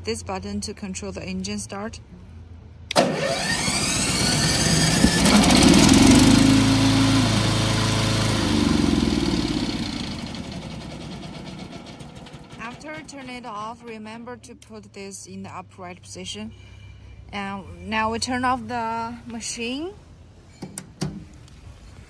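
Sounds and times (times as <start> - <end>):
gasoline engine starting and revving: 2.9 - 14.0.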